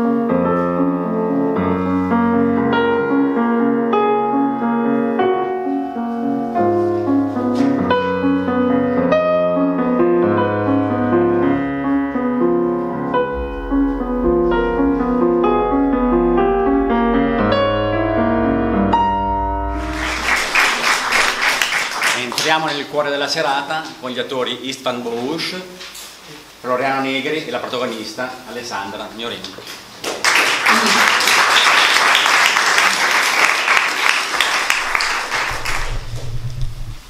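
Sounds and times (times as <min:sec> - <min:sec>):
classical piano piece: 0:00.0 - 0:22.7, 0:31.2 - 0:37.0
applause: 0:19.8 - 0:22.9, 0:30.0 - 0:36.2.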